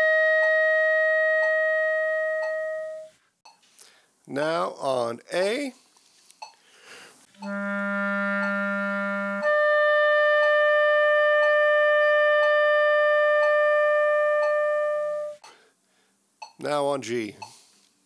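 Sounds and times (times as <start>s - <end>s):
clarinet holding notes: 0.0s - 3.2s, 7.4s - 15.4s.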